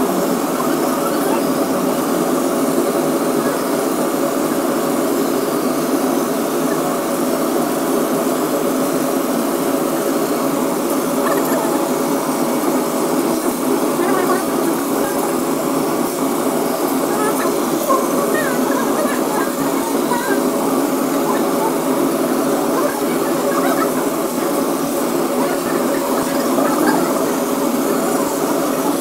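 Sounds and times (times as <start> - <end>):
faint murmuring voices: 0.0 - 29.0
laser cutter whirring: 0.0 - 29.0.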